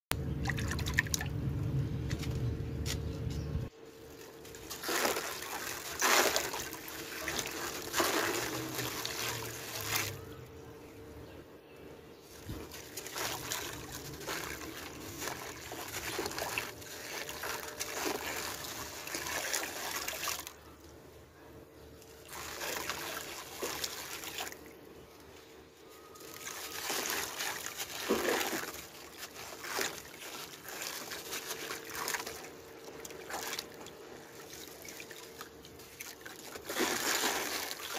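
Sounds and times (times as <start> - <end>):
faint steady hum: 0.1 - 37.9
grit crunching into water: 4.1 - 10.2, 12.3 - 20.6, 22.2 - 24.6, 26.2 - 37.9.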